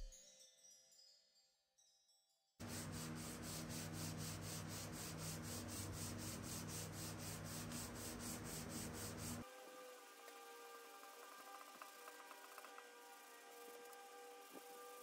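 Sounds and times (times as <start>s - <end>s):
sanding sponge rubbing wood: 2.6s - 9.4s.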